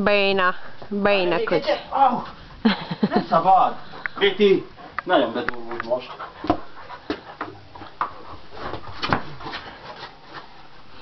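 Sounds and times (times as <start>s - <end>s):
knocks and scuffles: 6.4s - 10.5s.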